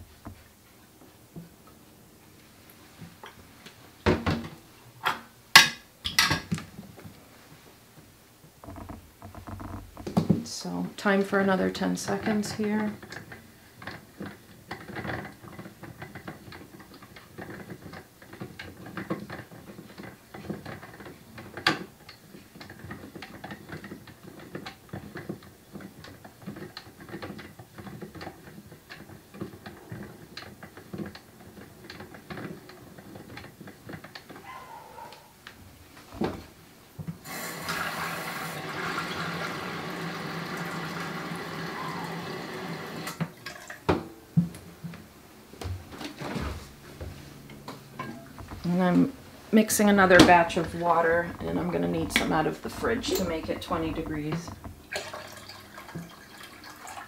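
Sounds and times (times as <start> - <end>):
tap water running into jug: 37.2 - 44.0, 48.9 - 57.0
tank agitator rod rattling: 47.9 - 57.0.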